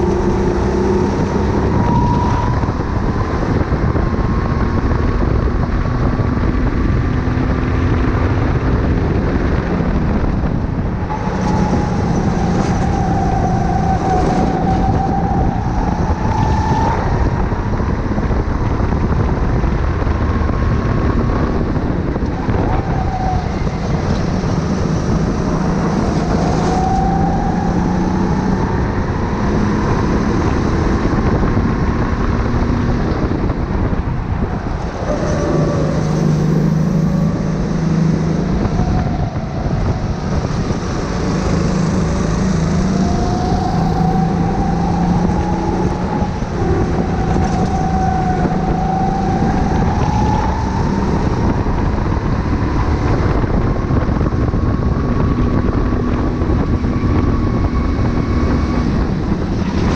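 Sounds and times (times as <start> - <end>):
kart engine revving: 34.6 - 59.9.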